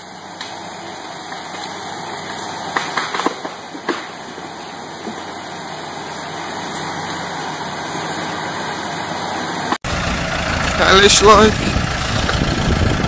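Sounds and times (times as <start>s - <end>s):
mud spraying with sharp cracks: 0.0s - 9.8s
tractor engine running: 0.0s - 13.0s.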